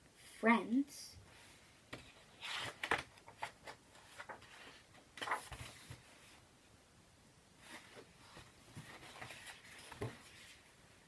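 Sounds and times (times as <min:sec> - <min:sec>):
book pages turning: 0:01.9 - 0:06.1, 0:07.7 - 0:10.7.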